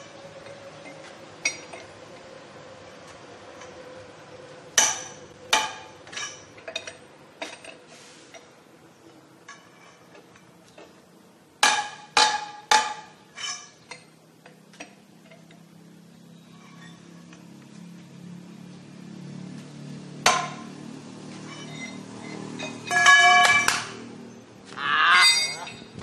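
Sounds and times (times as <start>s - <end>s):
lug wrench clanking on wheel nuts: 0.4s - 2.2s, 4.8s - 8.6s, 9.4s - 11.0s, 11.6s - 15.7s, 21.3s - 24.0s.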